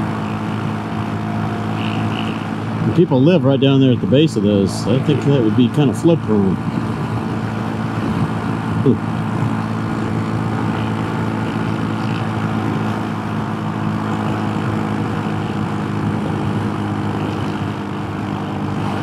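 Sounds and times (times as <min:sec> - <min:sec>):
motorcycle engine cruising: 0:00.0 - 0:19.0.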